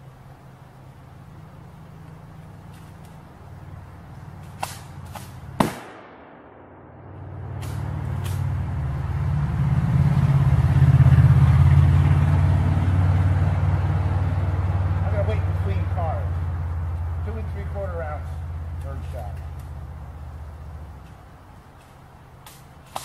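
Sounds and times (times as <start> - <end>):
vehicle engine rumble: 0.0 - 23.0
shotgun blast: 4.6 - 8.4.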